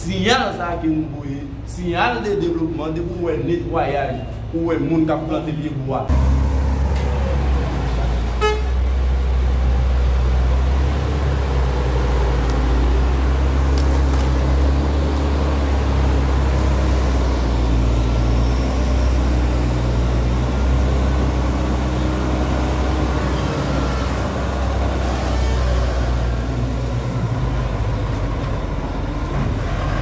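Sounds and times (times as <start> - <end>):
diesel engine deep rumble: 0.0 - 30.0
horn toot: 8.3 - 8.9.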